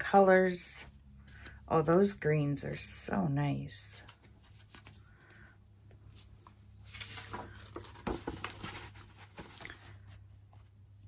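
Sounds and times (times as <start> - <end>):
paper rustling and tapping: 6.9 - 9.8.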